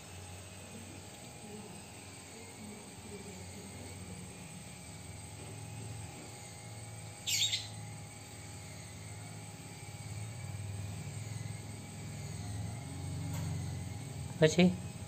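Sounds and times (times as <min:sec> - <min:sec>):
baby monkey squealing: 0:07.2 - 0:07.8.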